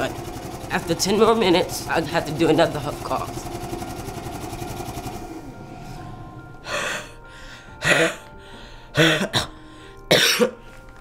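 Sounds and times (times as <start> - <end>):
therapy vest pulsing: 0.0 - 7.7
forceful huff coughs: 7.8 - 8.3, 9.0 - 10.6.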